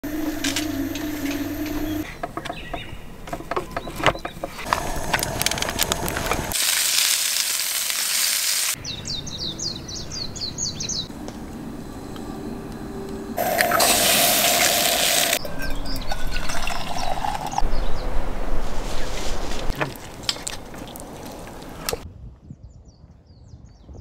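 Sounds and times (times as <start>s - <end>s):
steady hum: 0.0s - 2.0s, 11.1s - 17.5s
bird chirping: 0.1s - 5.1s, 8.8s - 11.2s, 13.4s - 18.2s
patties sizzling in a frying pan: 5.0s - 8.8s.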